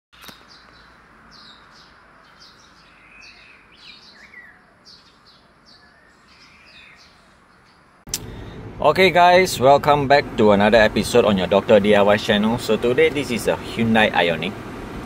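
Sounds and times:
faint birds chirping: 0.2 - 8.5.

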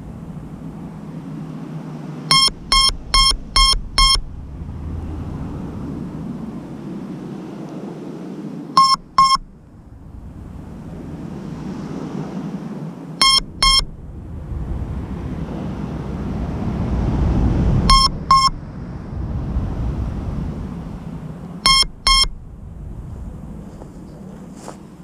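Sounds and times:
low background rumble: 0.0 - 25.0
short double beeps: 2.3 - 4.3, 8.8 - 9.5, 13.2 - 13.9, 17.9 - 18.6, 21.6 - 22.4.

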